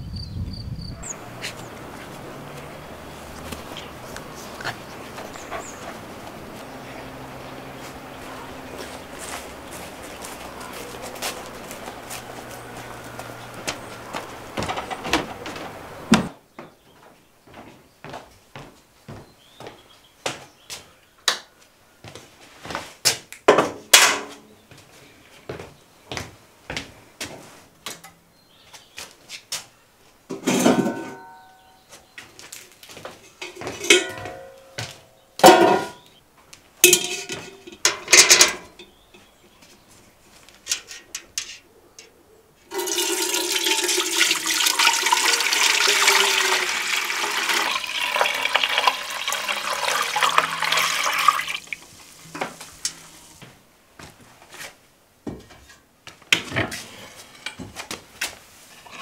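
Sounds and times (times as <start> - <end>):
kitchenware clinking: 30.3 - 31.8, 33.2 - 36.1, 36.8 - 39.0, 42.7 - 51.6
water pouring into a vessel: 42.7 - 51.9.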